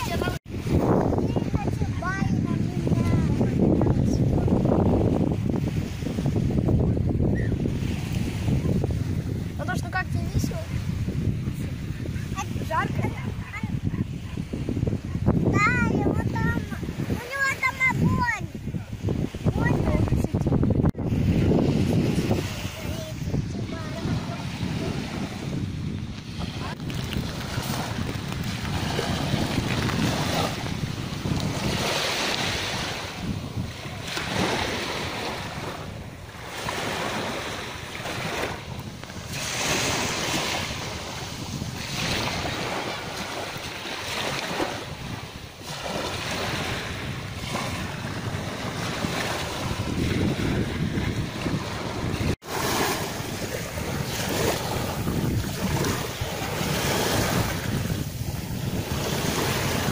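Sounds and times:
small waves breaking on shore: 0.0s - 59.9s
wind rumbling on microphone: 0.0s - 59.9s.

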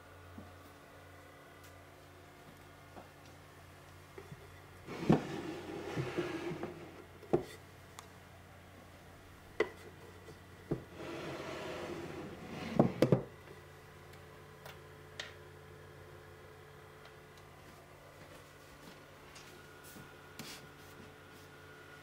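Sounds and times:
wooden drawer sliding: 4.9s - 7.0s, 10.9s - 13.2s.

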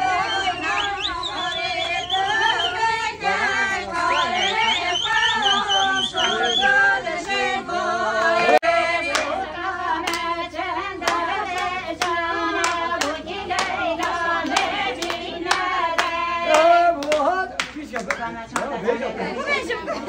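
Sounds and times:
women singing together: 0.0s - 20.0s
hand clapping: 9.0s - 9.4s, 10.0s - 10.4s, 11.0s - 18.8s.

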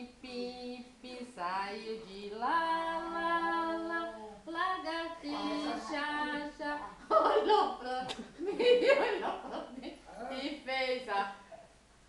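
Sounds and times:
child singing without words: 0.0s - 7.0s.

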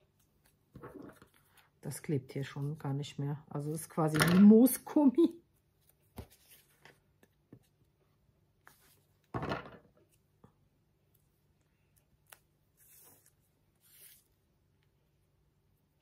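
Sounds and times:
paper rustling: 5.8s - 7.8s, 12.2s - 14.4s.

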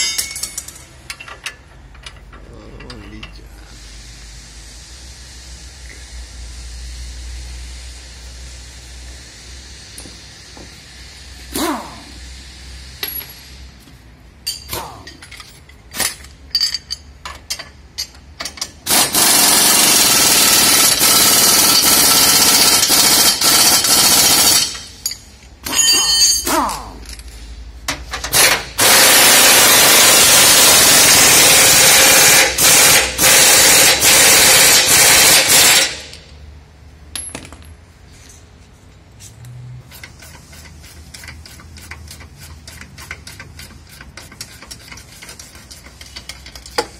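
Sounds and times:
air impact wrench hammering: 0.0s - 2.2s, 11.5s - 12.2s, 17.5s - 27.0s, 27.9s - 36.3s
hand tools clicking and clanking: 0.0s - 3.4s, 39.9s - 46.9s.

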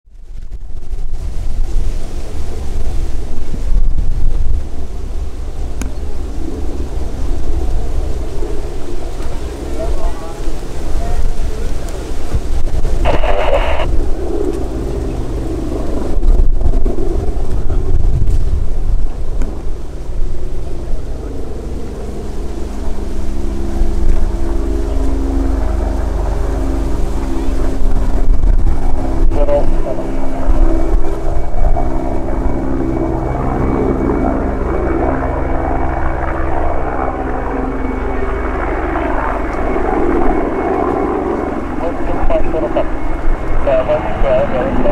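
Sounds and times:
helicopter rumble overhead: 0.1s - 44.9s
wind on microphone: 0.1s - 44.9s
turboshaft engines whining: 4.6s - 44.9s
brief burst of noise: 13.1s - 13.9s.

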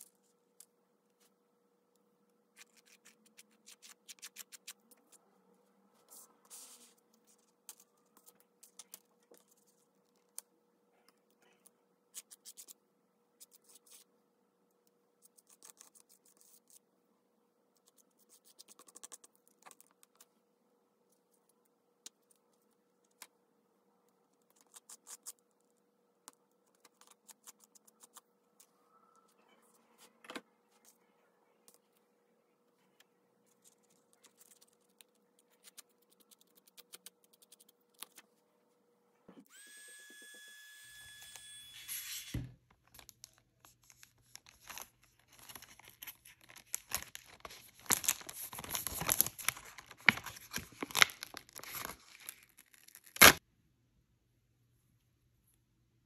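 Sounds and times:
faint hum: 0.0s - 52.5s
hands working with paper: 41.8s - 53.4s.

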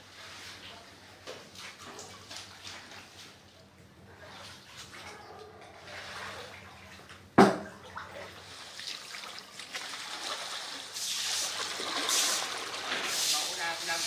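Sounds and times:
floodwater sloshing: 1.4s - 14.0s
loud splash: 8.8s - 14.0s.

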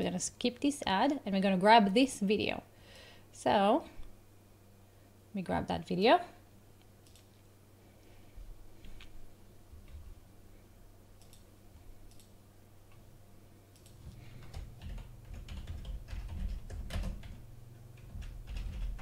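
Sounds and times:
typing on computer keyboard: 11.2s - 11.5s, 13.8s - 17.4s, 18.0s - 19.0s.

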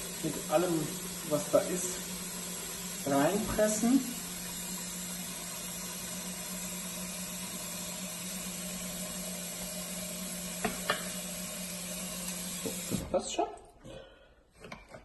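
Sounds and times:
tap water running into pot: 0.0s - 13.3s.

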